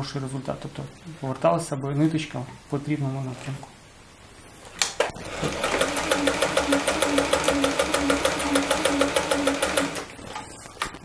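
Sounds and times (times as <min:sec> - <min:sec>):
sewing machine stitching: 0:05.0 - 0:10.6.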